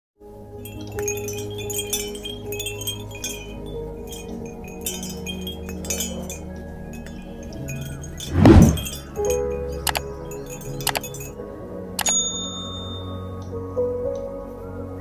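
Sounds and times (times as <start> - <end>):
metal tube wind chime ringing: 0.6 - 13.4.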